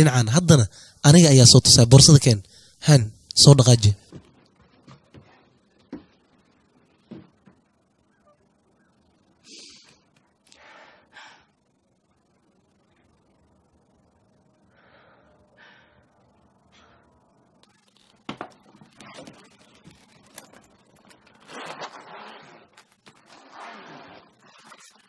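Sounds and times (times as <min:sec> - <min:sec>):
rustling and scraping: 0:17.8 - 0:25.0.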